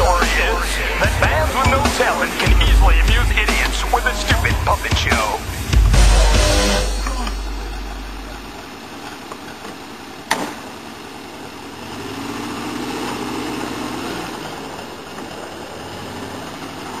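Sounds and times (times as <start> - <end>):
truck engine running: 0.0 - 17.0.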